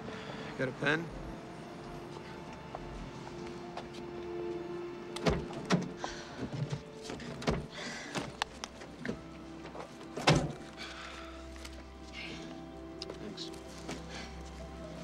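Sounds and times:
quiet music with held notes: 0.0s - 15.0s
car door knocking and thunking: 5.2s - 8.4s.

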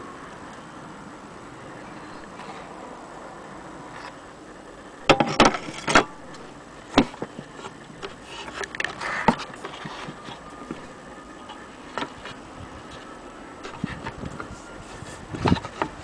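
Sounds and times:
handling knocks and clicks: 5.1s - 14.5s.

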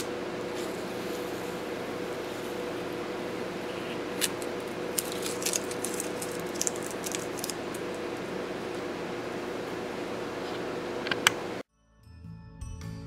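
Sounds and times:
room hum: 0.0s - 11.7s
tape and paper clicks and crinkles: 4.1s - 8.0s.

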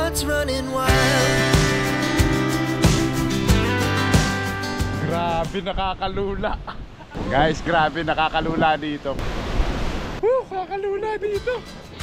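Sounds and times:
song with guitar and beat: 0.0s - 5.6s, 11.4s - 12.0s.

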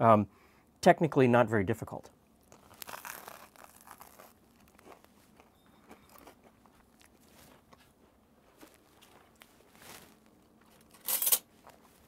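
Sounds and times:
crunching and chewing bagel: 2.4s - 12.0s.

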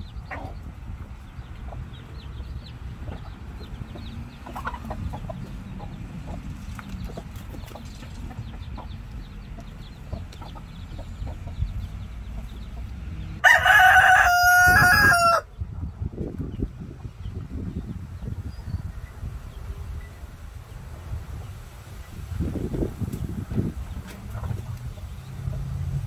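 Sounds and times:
hens clucking softly: 0.2s - 13.0s, 23.5s - 25.7s
rooster crowing: 13.4s - 15.5s.

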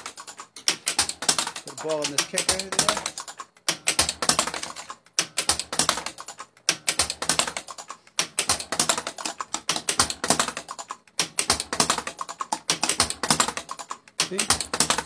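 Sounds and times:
pinball solenoids and relays clicking: 0.0s - 15.0s.

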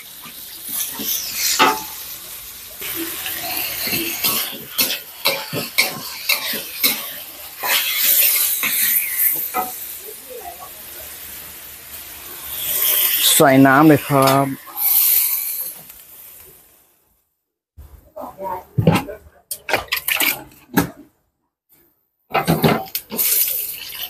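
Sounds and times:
pork sizzling in a wok: 0.0s - 17.0s, 18.2s - 21.0s, 22.3s - 24.0s
metal spatula clanking on wok: 1.5s - 2.0s, 3.6s - 9.8s.

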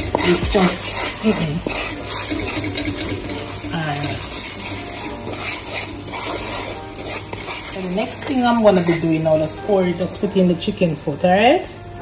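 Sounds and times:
wooden spoon stirring and scraping: 0.0s - 10.8s
food sizzling in a pot: 0.0s - 12.0s.

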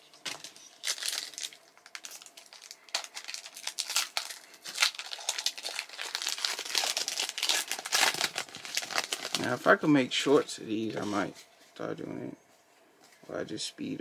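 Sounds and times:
foil wrapper crinkling: 0.2s - 9.7s.

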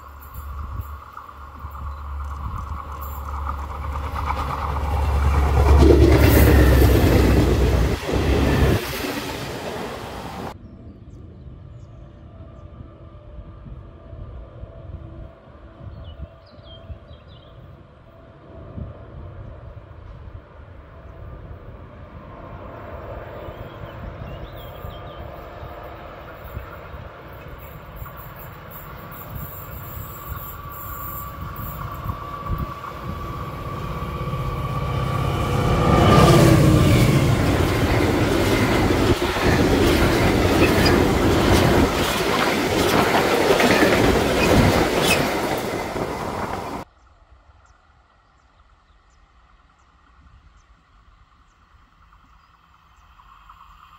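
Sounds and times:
locomotive rumble: 0.0s - 10.6s, 20.9s - 46.9s
wagons rattling over rails: 0.0s - 10.6s, 36.8s - 46.8s.

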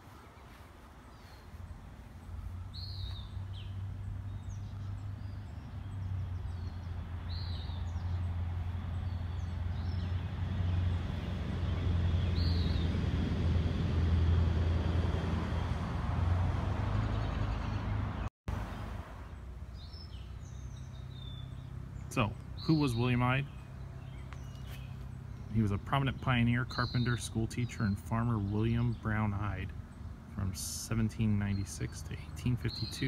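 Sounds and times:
birds chirping: 0.0s - 15.8s, 16.4s - 33.0s.

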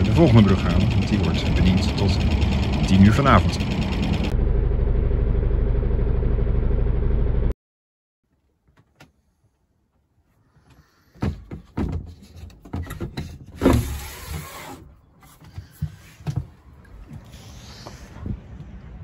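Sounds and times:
wooden hatch sliding scrape: 12.1s - 16.3s.

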